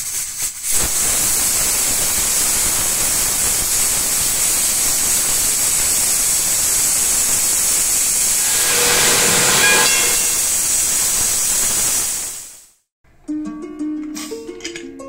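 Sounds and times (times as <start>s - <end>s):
pressure cooker steam hissing: 0.0s - 12.7s
faint whistling tones: 8.4s - 10.6s.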